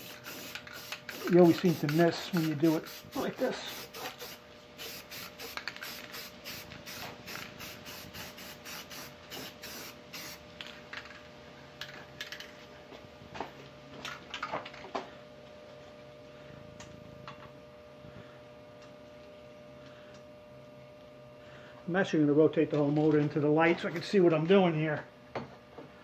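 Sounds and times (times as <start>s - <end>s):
spray paint hissing in bursts: 0.0s - 10.4s
faint steady hum: 0.0s - 26.0s.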